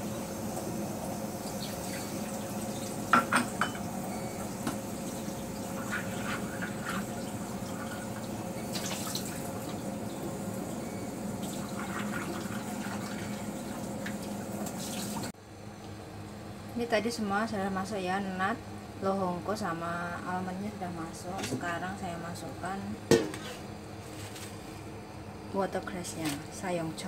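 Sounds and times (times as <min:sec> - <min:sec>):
crockery clinking: 0:03.2 - 0:03.8.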